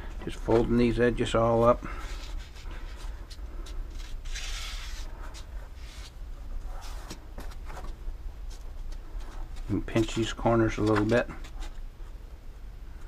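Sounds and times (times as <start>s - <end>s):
soft brushing rustle: 0.0s - 12.2s
low steady hum: 0.0s - 13.0s.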